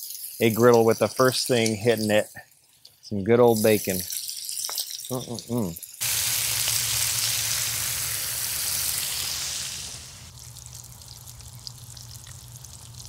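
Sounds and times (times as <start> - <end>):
bacon sizzling on a griddle: 4.1 - 13.0.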